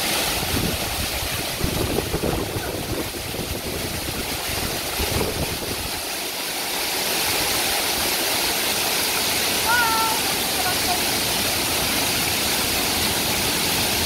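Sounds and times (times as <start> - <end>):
waterfall roaring: 0.0 - 14.0.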